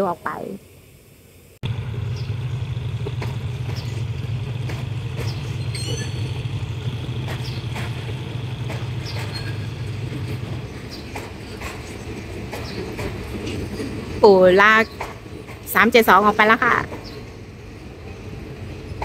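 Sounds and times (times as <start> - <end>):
diesel locomotive rumbling: 1.6 - 19.0
high squeal: 5.2 - 10.6.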